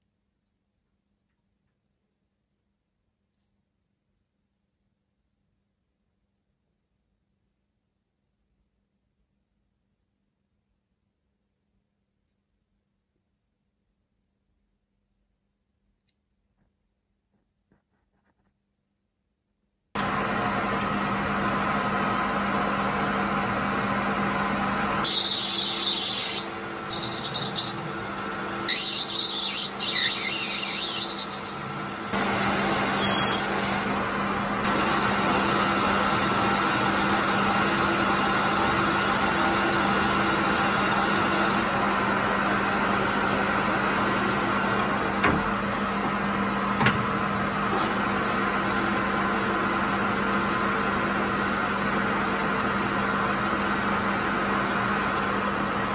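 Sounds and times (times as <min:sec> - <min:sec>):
lathe motor humming: 0:20.0 - 0:55.9
high-pitched cutting whine: 0:23.8 - 0:44.8.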